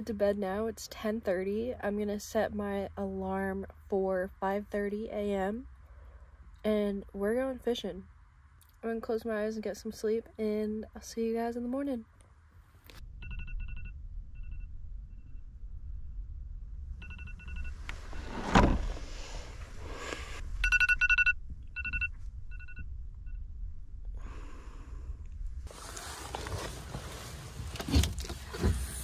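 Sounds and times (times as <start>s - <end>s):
phone alarm beeping: 13.2s - 15.5s, 17.0s - 17.8s, 20.6s - 23.4s
thump: 18.3s - 19.0s
rustling: 25.6s - 29.0s.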